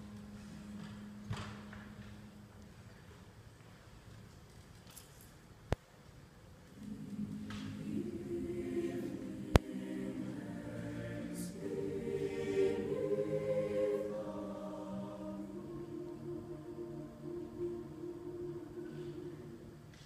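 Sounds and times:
mixed choir singing chords: 6.8s - 20.0s.

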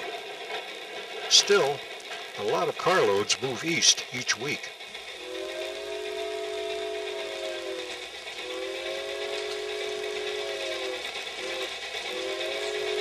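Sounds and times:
steam locomotive chime whistle: 2.6s - 13.0s.

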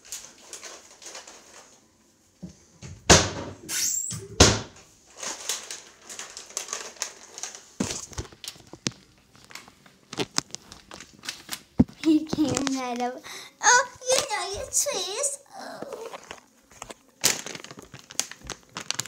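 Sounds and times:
rustling with light clicks: 0.0s - 1.8s, 5.1s - 15.2s.

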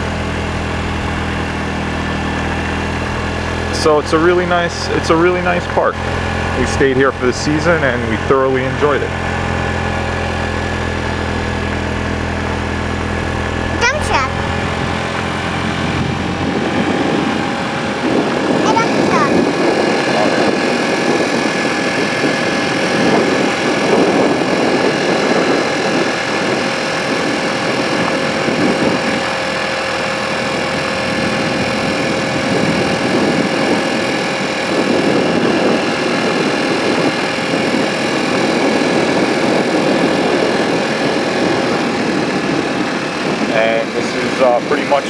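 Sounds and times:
vehicle engine droning: 0.0s - 45.0s.

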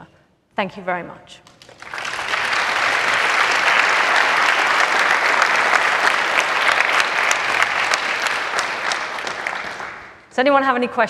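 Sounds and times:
audience applauding: 1.5s - 10.3s.

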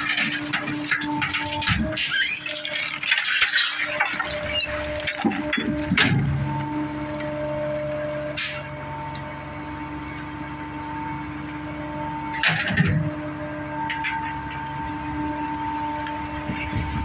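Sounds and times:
trash crunching: 0.0s - 9.4s
garbage truck hydraulic drone: 0.0s - 17.0s.

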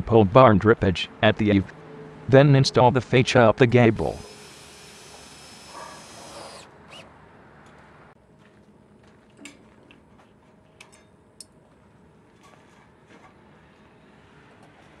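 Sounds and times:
cordless drill driving screw: 4.2s - 7.1s.

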